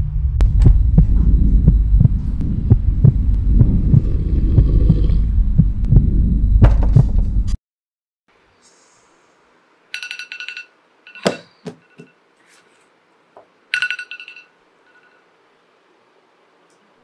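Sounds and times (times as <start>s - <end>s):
low droning hum: 0.0s - 7.6s
fast heavy heartbeat pulse: 0.4s - 7.4s.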